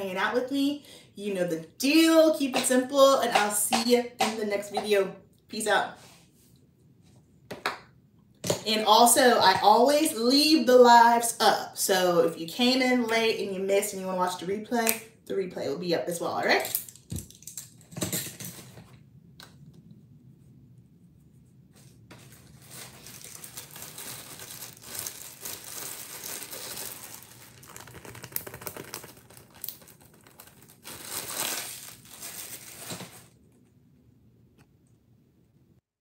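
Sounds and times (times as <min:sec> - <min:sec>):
plastic bag crinkling: 0:22.0 - 0:33.4.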